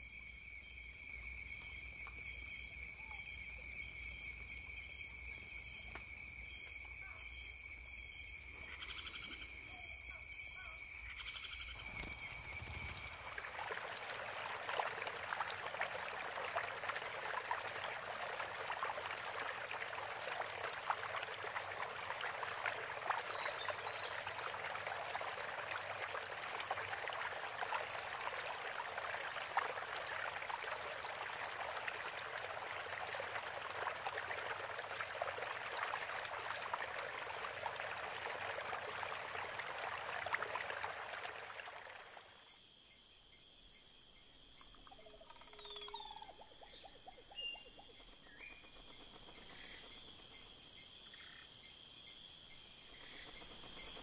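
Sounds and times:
frogs chirping: 0:08.4 - 0:42.6, 0:43.4 - 0:54.0
stream running over stones: 0:11.8 - 0:42.4.

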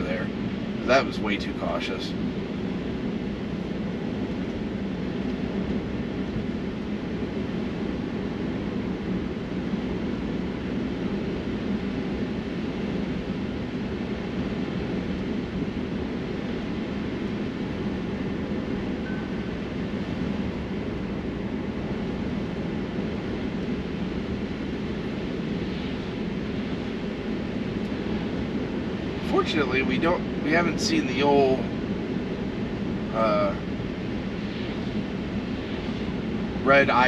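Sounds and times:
road and tyre noise in car: 0:00.0 - 0:37.0.

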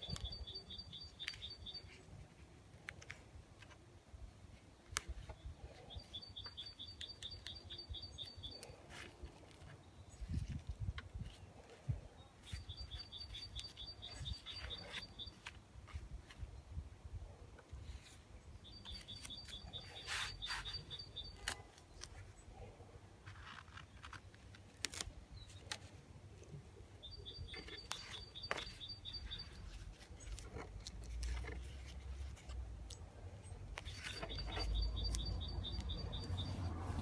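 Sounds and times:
songbird trilling: 0:00.0 - 0:02.0, 0:05.9 - 0:08.7, 0:12.4 - 0:15.5, 0:18.6 - 0:21.5, 0:27.0 - 0:30.4, 0:33.8 - 0:36.7
tape and paper towel rustling: 0:18.9 - 0:22.3.

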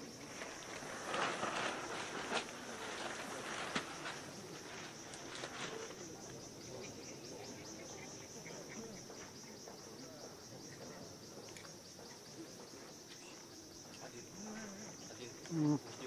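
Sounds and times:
insects chirring: 0:00.0 - 0:16.0
low background noise: 0:00.0 - 0:16.0.

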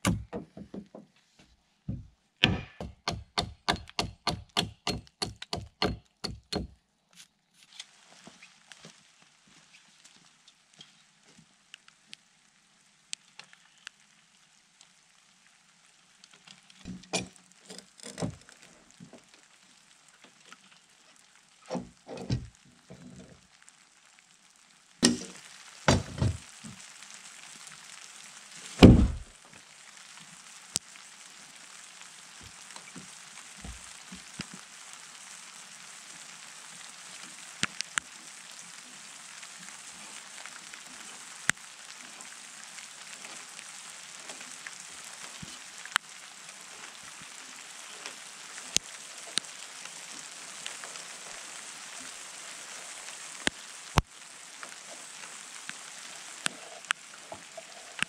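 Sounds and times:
axe striking log: 0:00.0 - 0:00.5, 0:02.4 - 0:06.7, 0:28.8 - 0:29.3
steady hiss: 0:01.4 - 0:58.0
heavy thud: 0:28.8 - 0:29.3.

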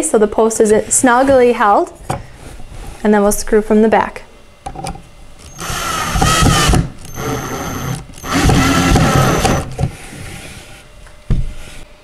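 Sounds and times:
cordless drill motor whining: 0:05.4 - 0:09.9.

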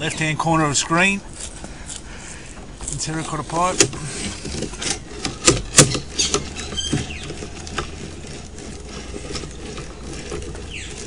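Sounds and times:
camera rig clicking and rattling: 0:03.6 - 0:11.0.

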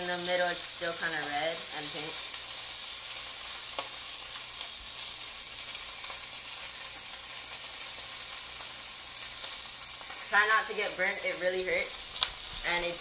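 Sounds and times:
fish sizzling in oil: 0:00.0 - 0:13.0.

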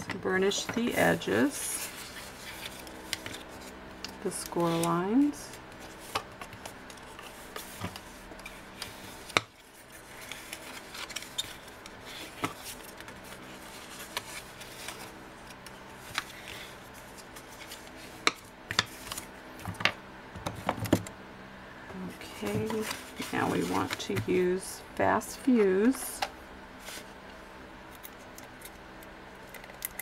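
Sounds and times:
paper rustling: 0:00.8 - 0:03.8, 0:04.4 - 0:19.3, 0:22.4 - 0:24.2.

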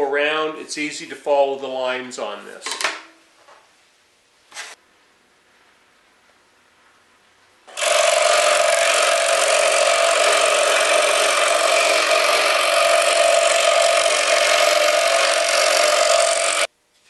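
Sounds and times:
scroll saw cutting plywood: 0:07.7 - 0:16.7.

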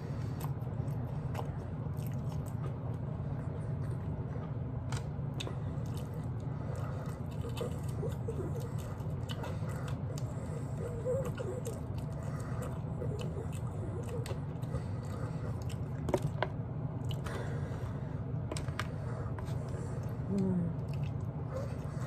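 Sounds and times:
steady low hum: 0:00.0 - 0:22.0
chewing and biting meat: 0:00.2 - 0:17.6.

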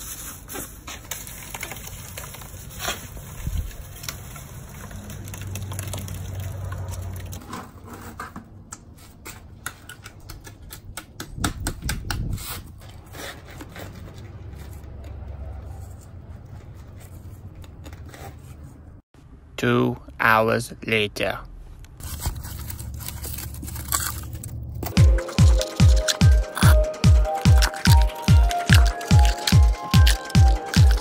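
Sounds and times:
bucket scrapes and knocks: 0:06.7 - 0:08.6.

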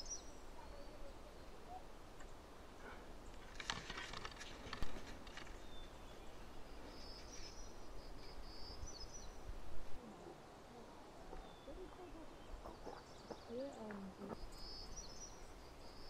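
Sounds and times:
rustling and crackling: 0:02.8 - 0:06.0.

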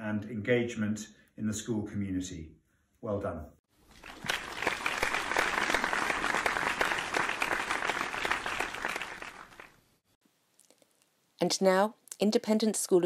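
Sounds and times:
crowd applauding: 0:03.9 - 0:09.8.

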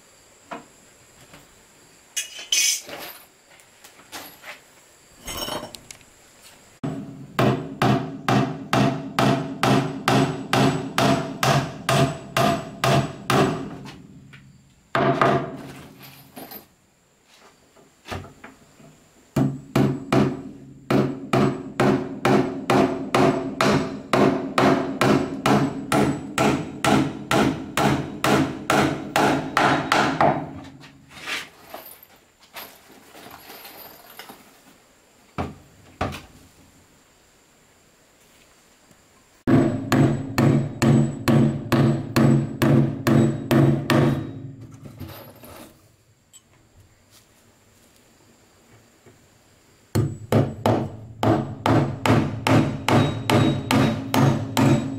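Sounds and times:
hammer blows on wood: 0:06.8 - 0:14.0, 0:19.4 - 0:30.6, 0:39.5 - 0:44.6, 0:50.0 - 0:54.9.

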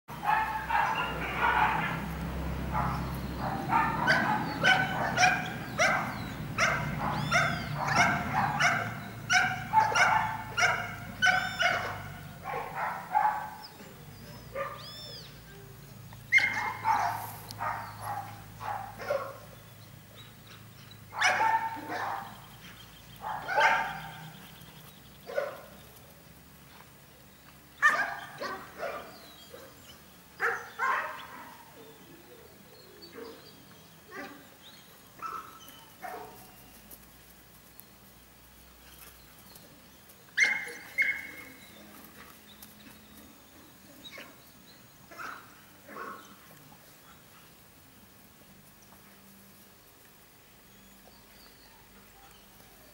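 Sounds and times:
dog barking: 0:00.2 - 0:02.0, 0:02.7 - 0:13.6, 0:14.6 - 0:14.9, 0:16.3 - 0:19.5, 0:21.2 - 0:22.4, 0:23.2 - 0:24.2, 0:25.3 - 0:25.6, 0:27.8 - 0:29.7, 0:30.4 - 0:31.6, 0:35.2 - 0:36.4, 0:40.4 - 0:41.4, 0:45.1 - 0:46.3.

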